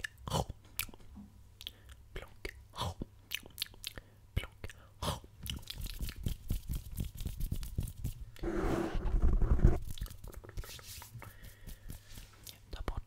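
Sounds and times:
rough scratching on microphone: 0:07.8 - 0:09.9.

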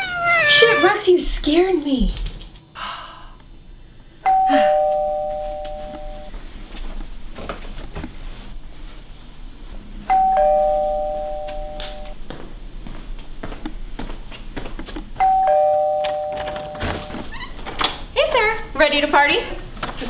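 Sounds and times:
two-tone doorbell chime: 0:04.2 - 0:06.3, 0:10.1 - 0:12.2, 0:15.2 - 0:17.2.

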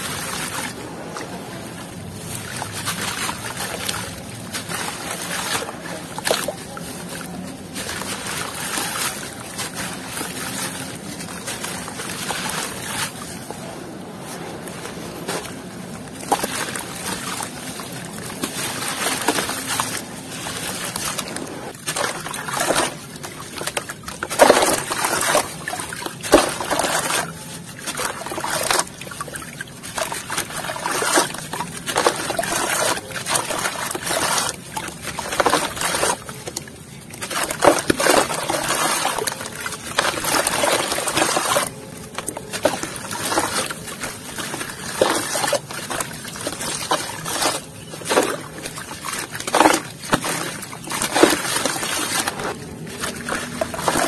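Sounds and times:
water trickling and sloshing: 0:00.0 - 0:54.0
wet gritty crunching: 0:00.0 - 0:54.0
bits splashing into water: 0:15.2 - 0:54.0.

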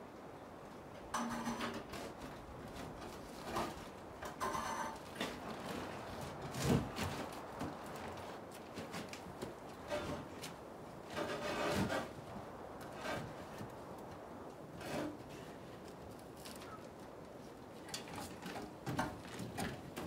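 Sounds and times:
wood and metal scraping and knocking: 0:01.0 - 0:13.8, 0:14.7 - 0:15.7, 0:17.8 - 0:20.0.

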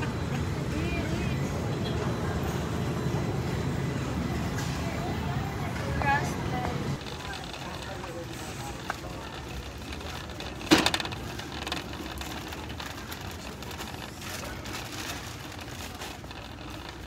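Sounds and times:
large store background noise: 0:00.0 - 0:17.0
shopping cart rolling: 0:00.4 - 0:17.0
sharp rattling clatter: 0:07.0 - 0:17.0.

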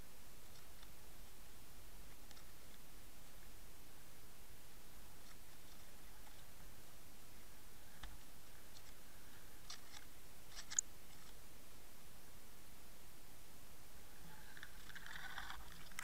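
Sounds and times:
small sharp clicks: 0:09.7 - 0:11.4.

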